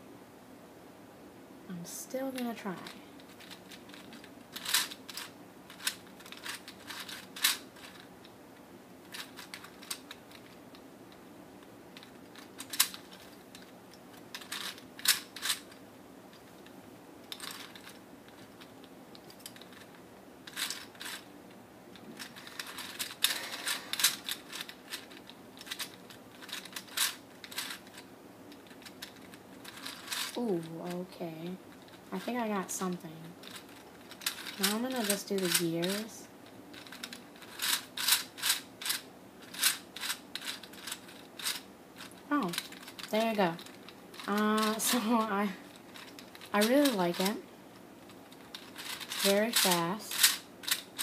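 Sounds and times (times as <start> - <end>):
plastic puzzle clicking: 3.2 - 8.1, 9.1 - 10.8, 12.0 - 15.8, 17.3 - 21.3, 22.0 - 30.7, 33.4 - 36.1, 36.7 - 45.3, 48.0 - 51.0.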